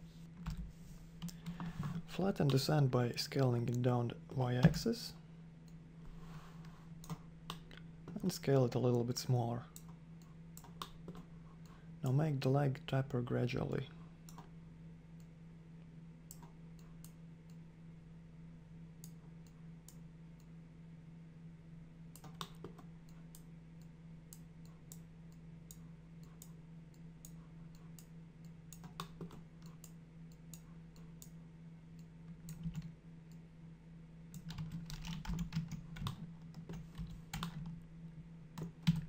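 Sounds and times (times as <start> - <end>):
steady low hum: 0.0 - 39.0
computer keyboard keys clicking: 34.4 - 37.7.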